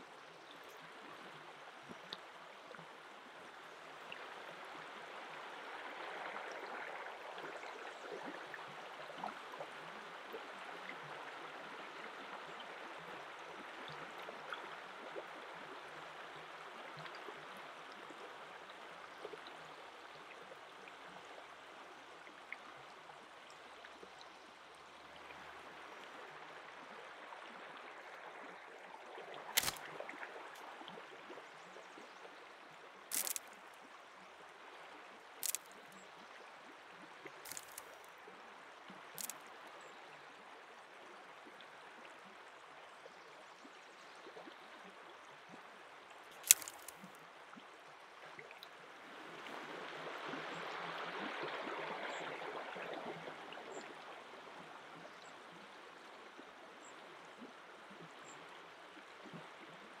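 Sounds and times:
faint clicks: 0:29.6 - 0:29.9, 0:33.1 - 0:33.6, 0:35.4 - 0:36.0, 0:37.4 - 0:38.1, 0:39.2 - 0:39.5, 0:46.3 - 0:47.2
river rushing over pebbles: 0:29.6 - 0:29.9, 0:33.1 - 0:33.5, 0:35.4 - 0:35.8, 0:37.5 - 0:38.1, 0:39.2 - 0:39.4, 0:46.4 - 0:47.0.

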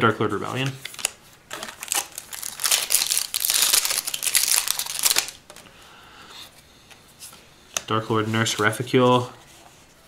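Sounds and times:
foil wrapper crinkling and tearing: 0:00.8 - 0:05.4.

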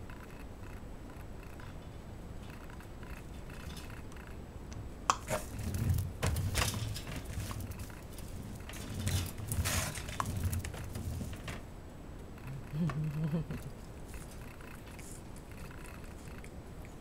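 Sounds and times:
clicks and scraping rustles: 0:00.1 - 0:04.4, 0:05.1 - 0:11.7, 0:12.3 - 0:17.0
lint roller knocking and rolling: 0:05.1 - 0:11.7
puppies scrambling on plastic mat: 0:05.3 - 0:11.6.

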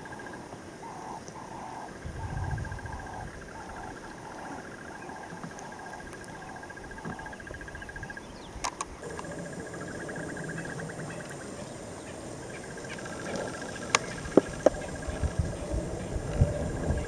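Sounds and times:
insect trill: 0:00.0 - 0:17.0.

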